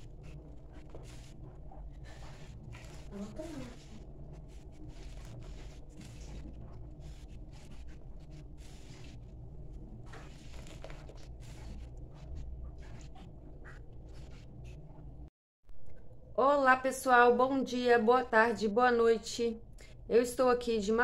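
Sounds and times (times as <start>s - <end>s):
sponge squelching and scrubbing soap: 0.0s - 14.8s
steady low hum: 0.0s - 21.0s.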